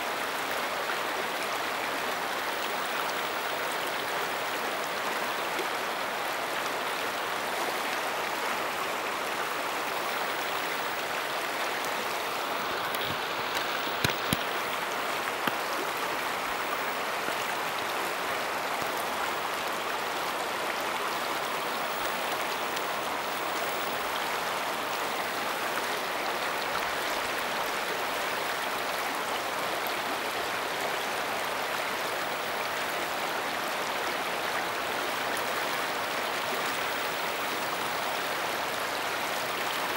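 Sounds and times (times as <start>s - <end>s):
river flowing over rocks: 0.0s - 39.9s.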